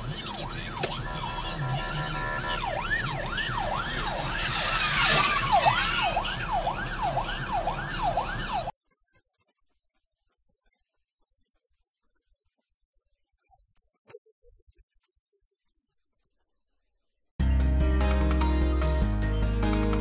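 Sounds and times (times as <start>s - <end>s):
police siren yelping: 0.0s - 8.7s
traffic noise: 0.0s - 8.7s.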